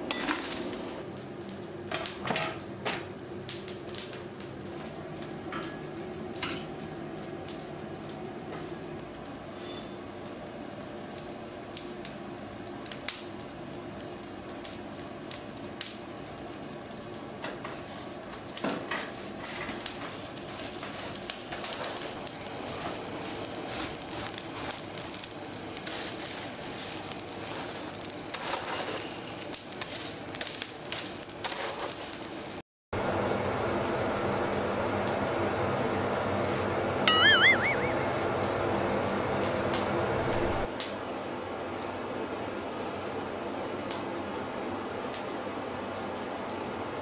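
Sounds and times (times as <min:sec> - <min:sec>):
forge fire rushing and crackling: 0:10.1 - 0:32.6, 0:39.7 - 0:40.9
tongs clinking in coals: 0:37.1 - 0:37.8.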